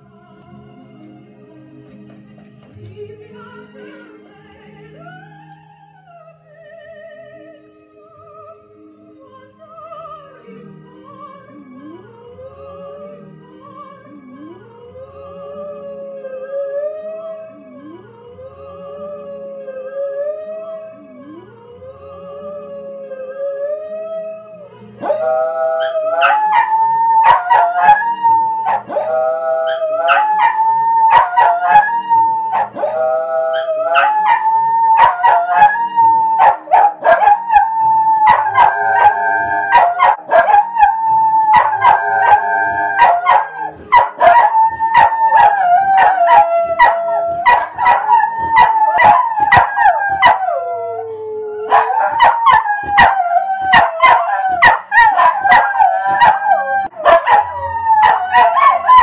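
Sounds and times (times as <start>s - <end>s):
music: 0.0s - 59.0s
dog howling: 23.2s - 59.0s.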